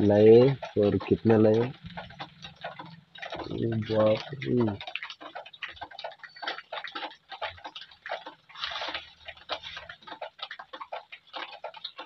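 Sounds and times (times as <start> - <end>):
plastic bag rustling and crinkling: 8.5 - 10.2.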